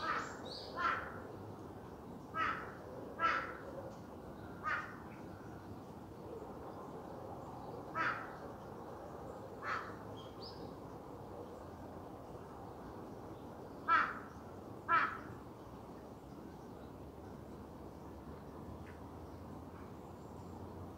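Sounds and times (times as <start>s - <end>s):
crow cawing: 0.0s - 1.2s, 2.4s - 3.6s, 4.6s - 5.0s, 7.9s - 8.4s, 9.6s - 10.0s, 13.9s - 15.4s.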